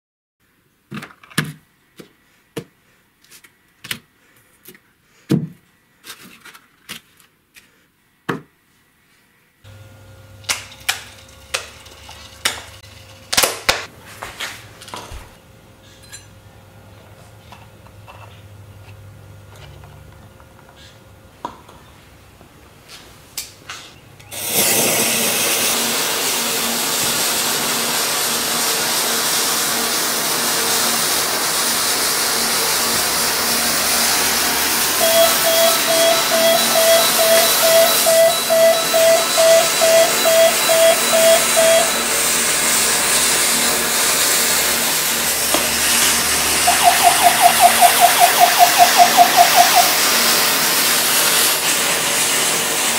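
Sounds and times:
fuse burning with loud hiss: 0:24.3 - 0:35.0.

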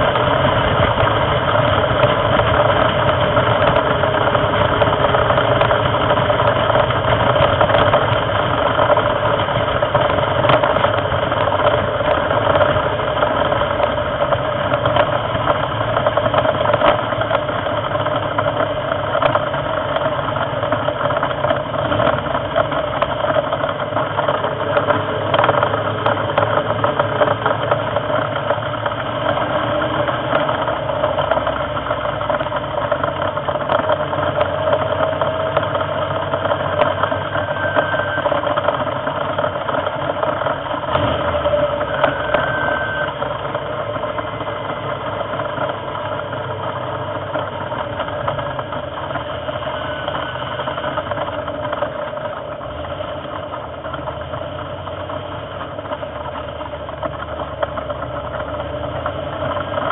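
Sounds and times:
race car engine at high revs: 0:00.0 - 0:59.9.

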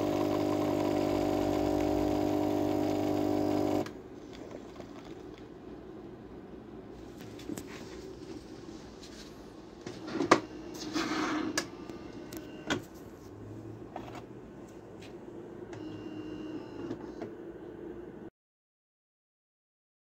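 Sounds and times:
espresso machine humming: 0:00.0 - 0:04.0.

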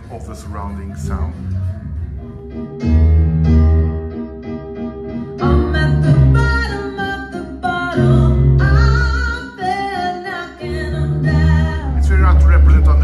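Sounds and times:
piano accompaniment: 0:00.0 - 0:13.0
woman singing: 0:05.4 - 0:12.0
heavy bass notes: 0:10.7 - 0:13.0.

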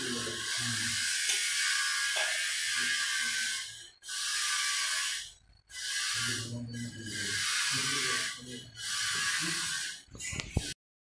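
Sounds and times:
sandpaper rubbing on wood: 0:05.8 - 0:10.0.

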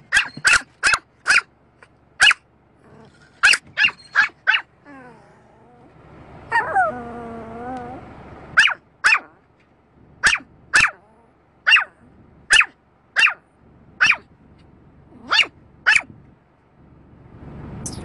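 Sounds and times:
small dog yapping: 0:00.1 - 0:01.5, 0:02.2 - 0:05.2, 0:06.5 - 0:08.0, 0:08.6 - 0:09.4, 0:10.2 - 0:13.4, 0:14.0 - 0:14.3, 0:15.2 - 0:16.1.

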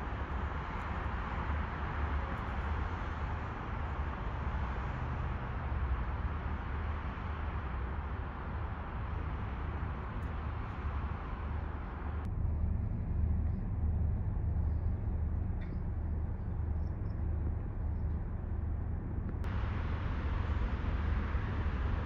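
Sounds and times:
distant road traffic rumble: 0:00.0 - 0:22.0.

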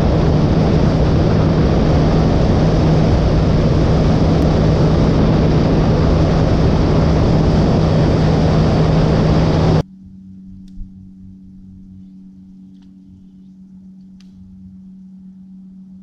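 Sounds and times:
outboard motor running at speed: 0:00.0 - 0:09.8
rushing noise: 0:00.0 - 0:09.8.

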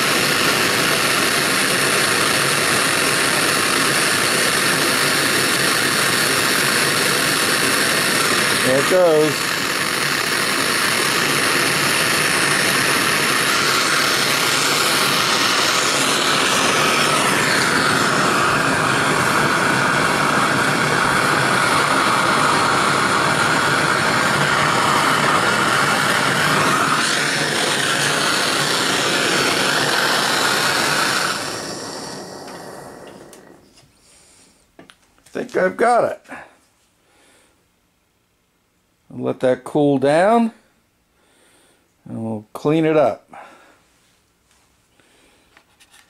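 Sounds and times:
gas torch hissing: 0:00.0 - 0:34.8.

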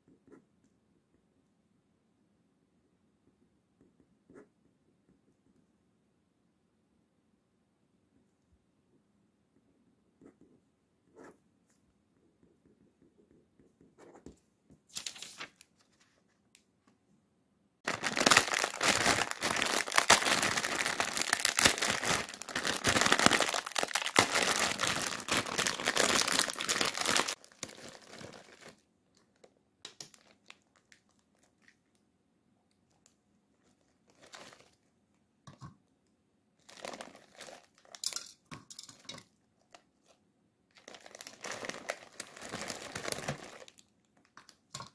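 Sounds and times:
dry noodles crackling: 0:17.9 - 0:28.8, 0:40.7 - 0:44.6
plastic packet crinkling and tearing: 0:17.9 - 0:29.4, 0:30.0 - 0:31.8, 0:33.7 - 0:34.9, 0:36.6 - 0:38.1, 0:40.7 - 0:44.6.

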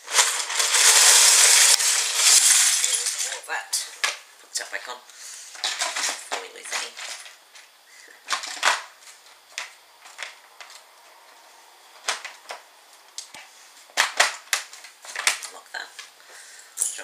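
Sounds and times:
plastic bricks clattering: 0:00.0 - 0:03.4, 0:05.6 - 0:07.4, 0:08.2 - 0:10.8, 0:12.0 - 0:12.6, 0:13.3 - 0:15.6.

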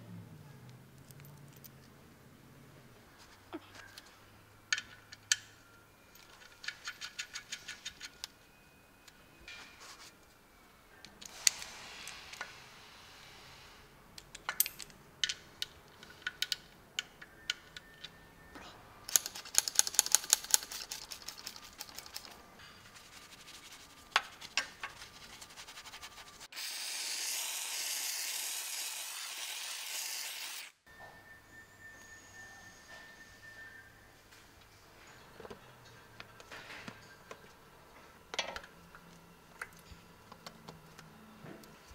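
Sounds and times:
spray hiss: 0:11.3 - 0:13.8
socket ratchet clicking: 0:19.1 - 0:22.3.

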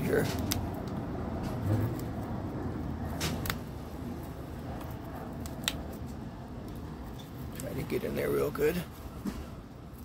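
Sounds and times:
dry leaves snapping off: 0:00.0 - 0:01.0, 0:03.1 - 0:03.8, 0:04.8 - 0:06.0.

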